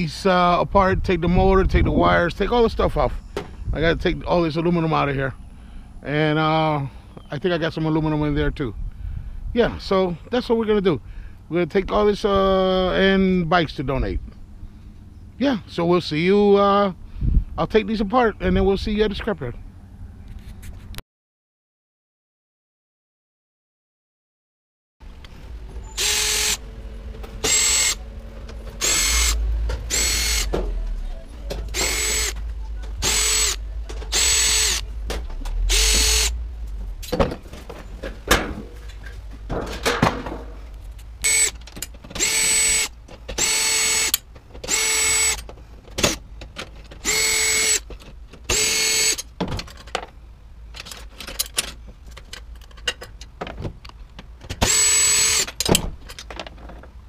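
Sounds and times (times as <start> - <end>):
cordless drill motor whine: 25.8 - 30.6, 31.7 - 32.4, 33.0 - 34.8, 35.7 - 36.3, 41.2 - 41.6, 42.2 - 45.4, 47.0 - 47.8, 48.5 - 49.2, 54.6 - 55.5
handling clicks and knocks: 29.6 - 33.0, 36.6 - 42.3, 43.0 - 43.4, 45.4 - 47.1, 47.8 - 48.5, 49.2 - 54.7, 55.5 - 57.0.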